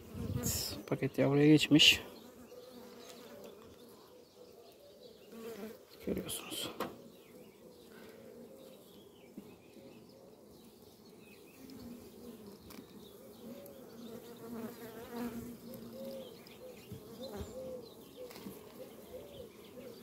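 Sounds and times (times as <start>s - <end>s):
bee colony buzzing: 7.1s - 20.0s
single bee droning past: 11.5s - 18.0s.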